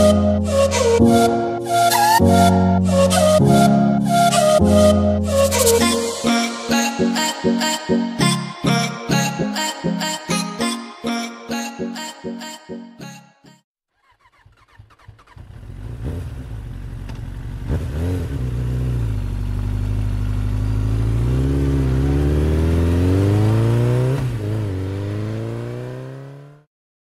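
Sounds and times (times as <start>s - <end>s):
motorcycle engine revving: 14.0s - 26.7s.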